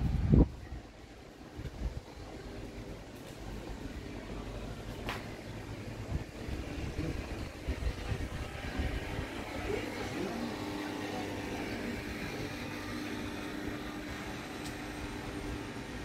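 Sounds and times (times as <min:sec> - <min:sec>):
steady mechanical hum: 0:00.0 - 0:16.0.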